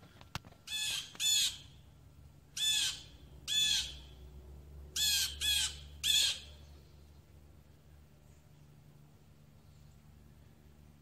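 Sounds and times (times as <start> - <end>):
blue jay screeching calls: 0.6 - 1.9, 2.5 - 4.2, 4.9 - 6.6.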